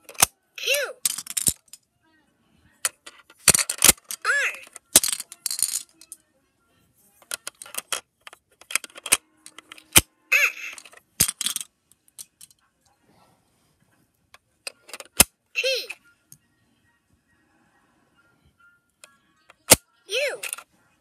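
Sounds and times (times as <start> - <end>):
plastic toys clicking and knocking: 0.0 - 0.3, 1.0 - 1.8, 2.8 - 6.2, 7.2 - 12.6, 14.3 - 16.0, 19.0 - 20.7
electronic toy sound effects: 8.8 - 11.0.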